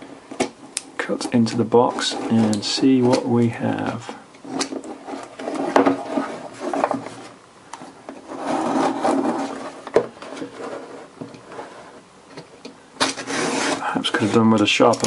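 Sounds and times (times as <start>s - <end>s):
knife scraping through cardboard: 8.2s - 12.0s, 13.0s - 14.5s.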